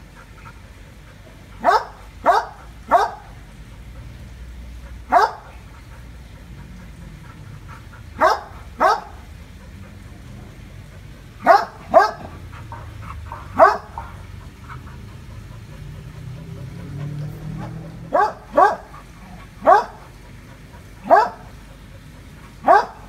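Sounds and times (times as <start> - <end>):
dog barking: 1.6 - 3.4, 5.1 - 5.6, 8.2 - 9.3, 11.4 - 14.3, 16.5 - 20.1, 21.0 - 21.6, 22.6 - 23.0.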